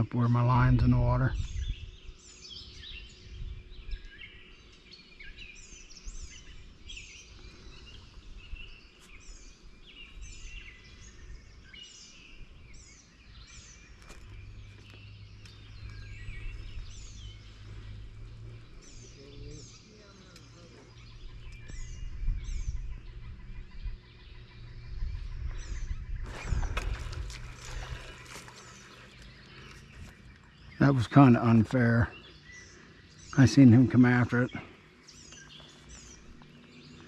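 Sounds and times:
low steady hum: 0.0s - 37.0s
songbirds chirping: 0.0s - 37.0s
low outdoor rumble: 12.7s - 37.0s.

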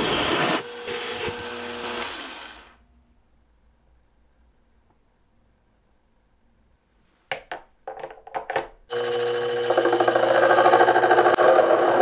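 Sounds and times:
metal lathe whining: 8.9s - 12.0s.

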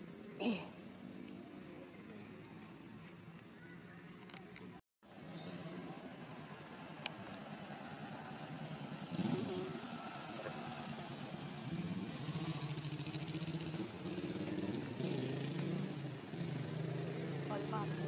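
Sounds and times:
vehicle engine running: 5.1s - 18.0s.

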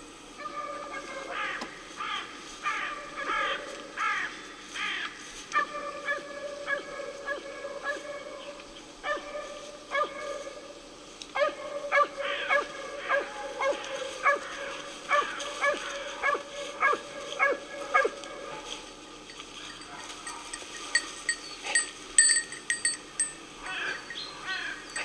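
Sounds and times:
hound baying: 19.6s - 25.0s.

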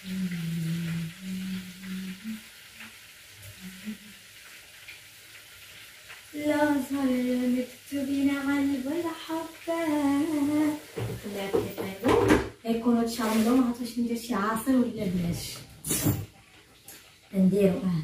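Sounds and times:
woman humming: 0.0s - 2.5s, 3.5s - 4.2s
food sizzling: 0.0s - 18.0s.

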